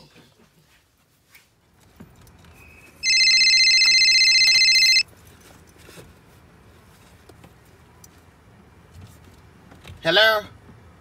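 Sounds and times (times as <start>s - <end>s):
mobile phone ringing: 3.0s - 5.0s.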